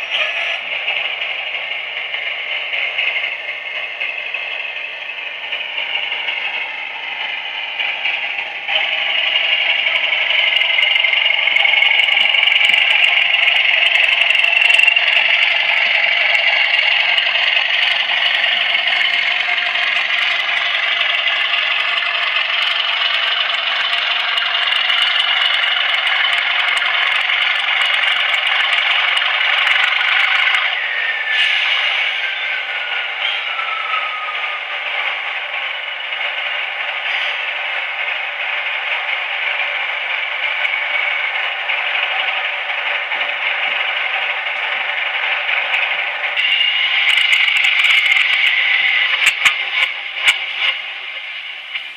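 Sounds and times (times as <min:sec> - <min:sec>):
model diesel engine sound: 0:00.0 - 0:51.9
high whistle: 0:30.8 - 0:34.7.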